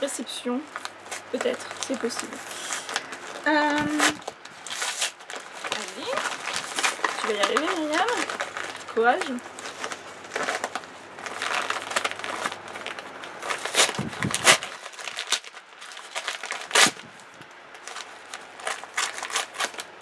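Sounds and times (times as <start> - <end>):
bubble mailer crinkling: 0.0 - 20.0.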